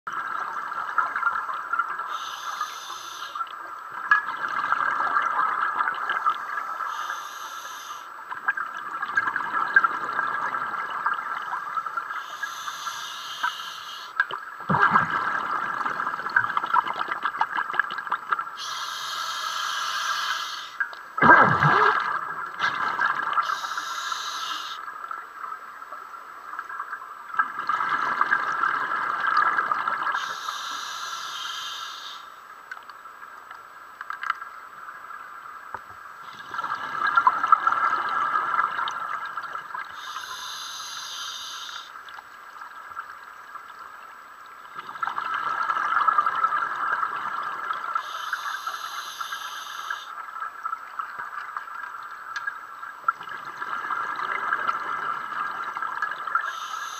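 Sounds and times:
faint hum: 0:00.1 - 0:16.7, 0:18.6 - 0:27.4, 0:30.0 - 0:33.9, 0:34.8 - 0:44.8, 0:45.4 - 0:50.7, 0:54.9 - 0:56.9
regulator hissing inhalation: 0:02.1 - 0:03.4, 0:06.5 - 0:08.1, 0:12.2 - 0:14.2, 0:18.6 - 0:20.8, 0:23.4 - 0:24.8, 0:30.2 - 0:32.3, 0:40.0 - 0:42.0, 0:48.0 - 0:50.1, 0:56.4 - 0:56.9
bubbling exhalations underwater: 0:14.6 - 0:17.7, 0:21.2 - 0:23.5.

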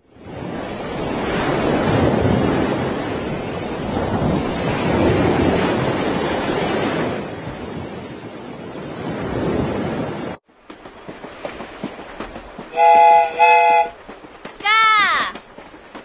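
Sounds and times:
ocean waves washing in: 0:00.0 - 0:16.0.

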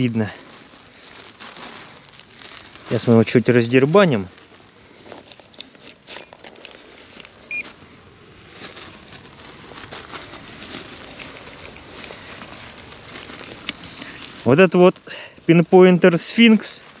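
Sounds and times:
soil crumbling by hand: 0:00.0 - 0:17.0.

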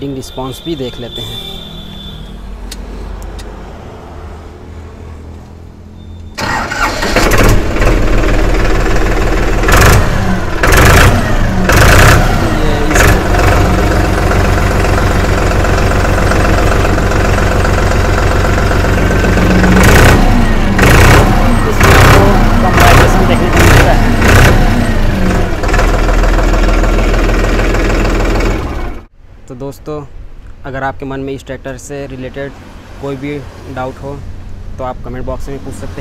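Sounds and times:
tractor diesel engine starting and revving: 0:06.1 - 0:29.1.

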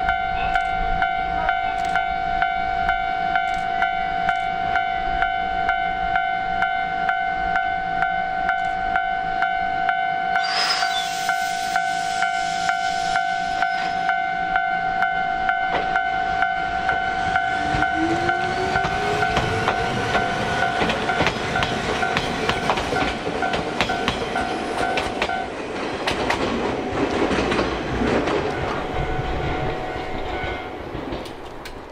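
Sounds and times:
level-crossing bell ringing: 0:00.0 - 0:22.4
wheels clacking over rail joints: 0:15.7 - 0:28.8, 0:30.0 - 0:31.9
train motor hum: 0:16.3 - 0:28.8.

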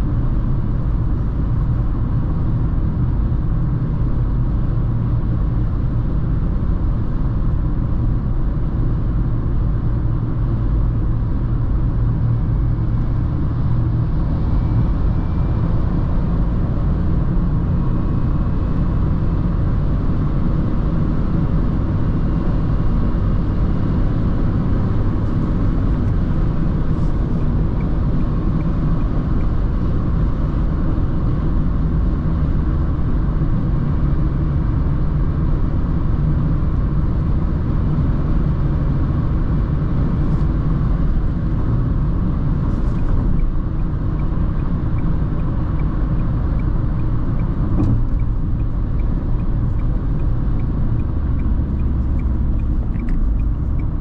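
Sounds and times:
car engine and tyres rumbling: 0:00.0 - 0:54.0
faint ticking: 0:44.2 - 0:54.0.

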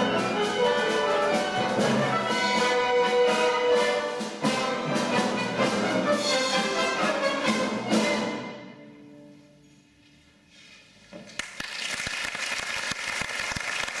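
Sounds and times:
audience applause: 0:11.3 - 0:14.0.

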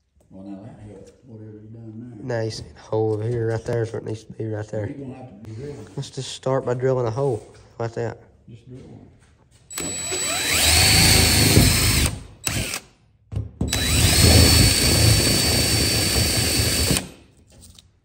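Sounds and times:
cordless drill drilling sheet metal: 0:09.7 - 0:12.9, 0:13.7 - 0:17.2.

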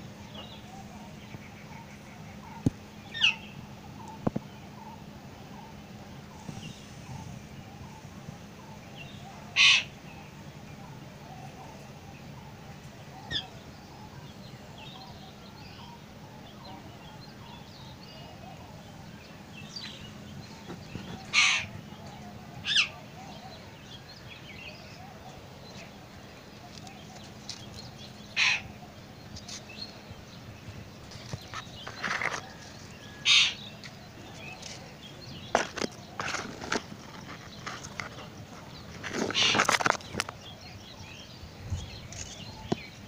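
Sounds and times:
loud bird calls: 0:00.0 - 0:43.0.

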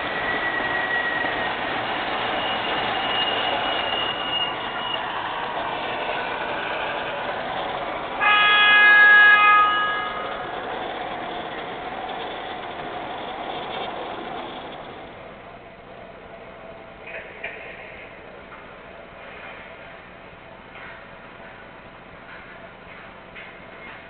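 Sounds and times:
high squeal: 0:00.0 - 0:15.2
model train rumbling on track: 0:00.0 - 0:24.0
model train horn: 0:08.2 - 0:10.5.

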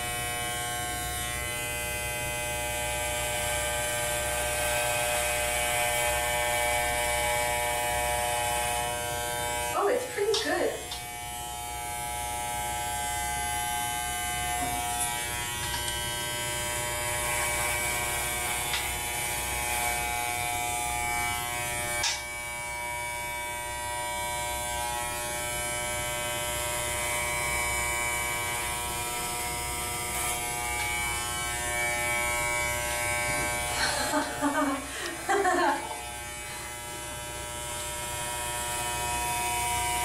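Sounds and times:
electric hair clipper buzzing: 0:00.0 - 0:40.0.

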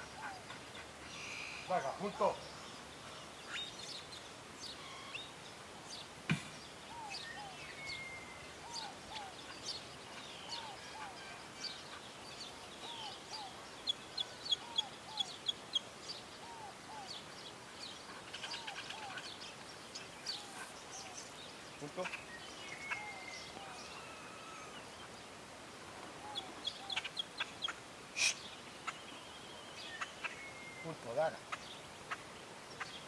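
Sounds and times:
short arched bird call: 0:28.2 - 0:28.5.

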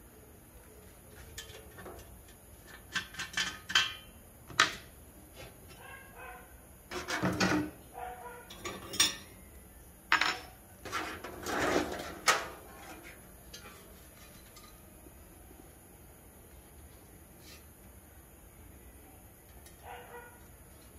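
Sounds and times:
metal stove parts clanking: 0:01.2 - 0:04.9, 0:06.9 - 0:07.8, 0:08.5 - 0:09.3, 0:10.1 - 0:14.9.

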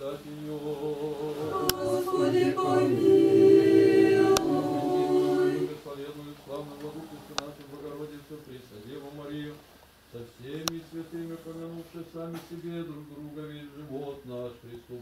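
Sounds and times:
group chanting unaccompanied: 0:00.0 - 0:06.0.

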